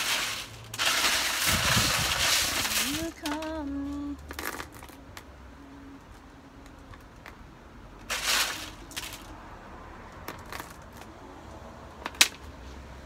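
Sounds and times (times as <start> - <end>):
plastic bag rustling: 0.0 - 3.7, 8.1 - 9.3
pebbles clicking: 0.0 - 5.3, 8.0 - 9.3, 10.1 - 11.1
low wind rumble: 1.1 - 3.2.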